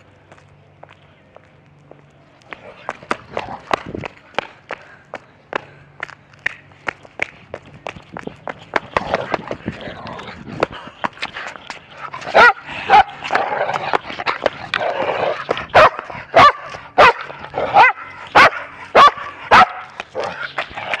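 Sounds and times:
small dog barking: 12.4s - 13.1s, 15.8s - 19.9s.

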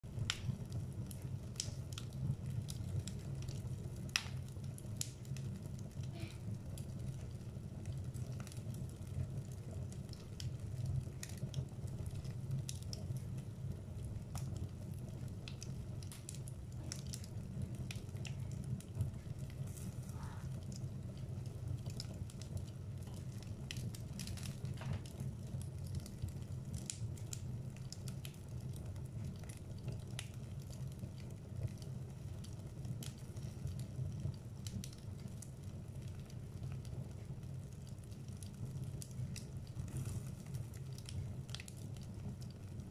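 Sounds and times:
wood crackling and popping: 0.0s - 42.9s
fire rushing: 14.0s - 25.8s.

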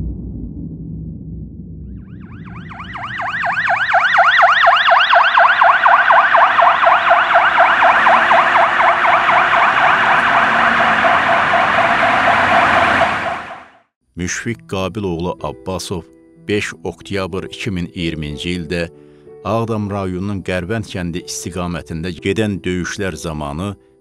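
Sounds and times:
ambulance siren yelping: 2.0s - 13.9s.

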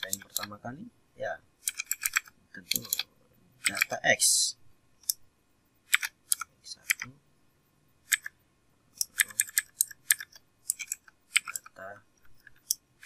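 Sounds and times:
keyboard typing: 0.0s - 0.6s, 1.6s - 4.0s, 5.8s - 7.1s, 8.0s - 8.4s, 9.0s - 13.0s.

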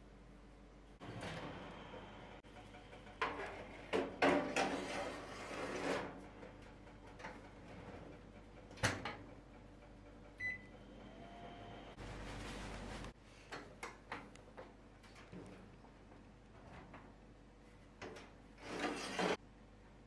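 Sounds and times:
metal tray scraping and rattling: 3.2s - 6.3s, 18.6s - 19.4s.

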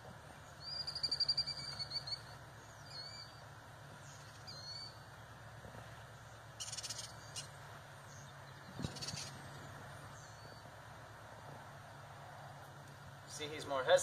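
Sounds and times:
songbird trilling and chirping: 0.4s - 5.0s, 6.2s - 10.8s.

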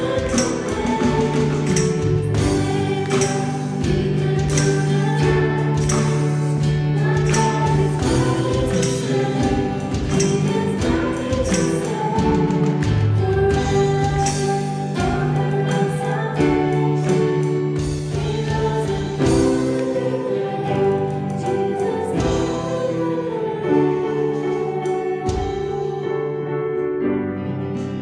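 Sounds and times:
drum and cymbal hits: 0.0s - 15.5s
women singing: 0.0s - 26.4s
acoustic guitar: 0.0s - 28.0s
keyboard chords: 0.0s - 28.0s.

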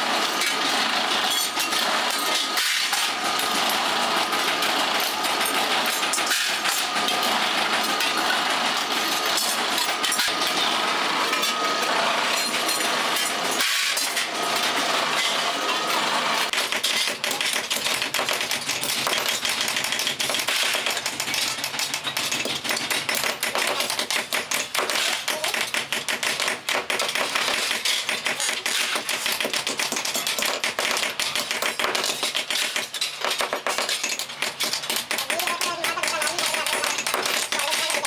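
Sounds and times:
hammer tapping metal: 16.5s - 38.0s.

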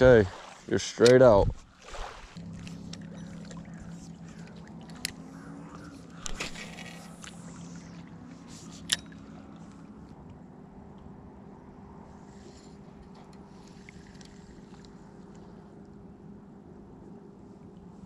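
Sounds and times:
reel clicks: 1.0s - 1.4s, 2.6s - 10.4s
fishing reel whirring: 2.6s - 9.8s.

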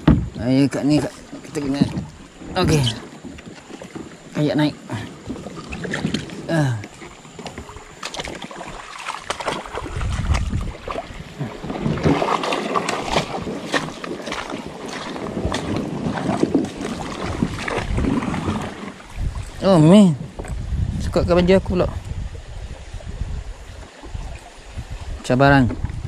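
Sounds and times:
paddle knocking on hull: 0.0s - 19.6s, 25.6s - 26.0s
water splashing against hull: 0.0s - 26.0s.

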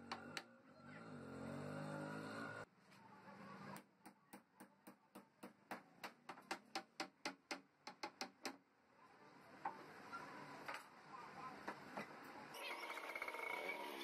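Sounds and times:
hammer tapping on wooden panel: 4.0s - 8.6s.

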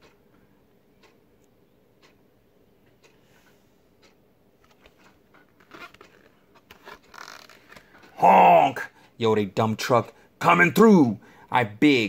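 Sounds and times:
faint clock ticking: 0.0s - 12.0s
book page turning: 4.6s - 7.9s.

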